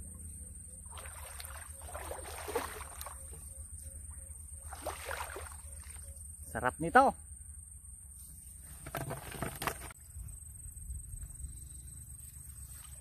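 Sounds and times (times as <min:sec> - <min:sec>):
water sloshing and splashing: 0:00.8 - 0:03.5, 0:04.6 - 0:06.1.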